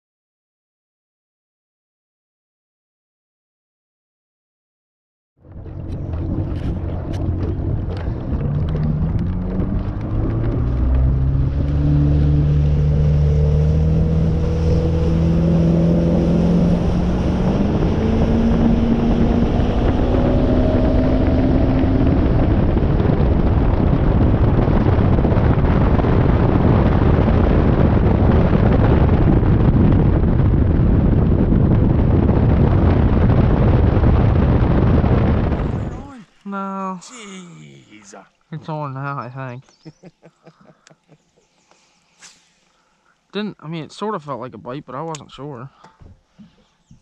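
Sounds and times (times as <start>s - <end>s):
outboard motor speeding up: 5.4s - 36.3s
rush of wind and water: 5.4s - 36.6s.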